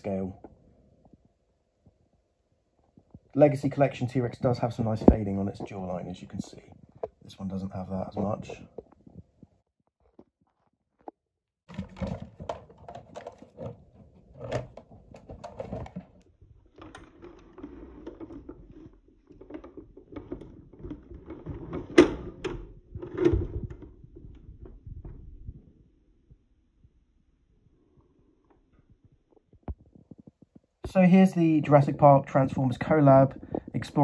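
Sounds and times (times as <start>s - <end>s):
plastic toys clicking and knocking: 11.7s - 24.6s.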